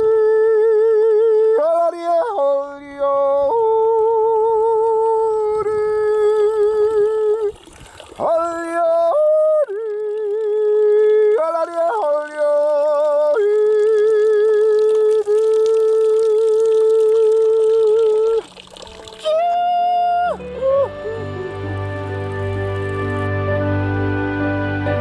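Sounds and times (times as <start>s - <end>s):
man yodeling: 0.0s - 7.5s, 8.2s - 18.5s, 19.2s - 21.4s.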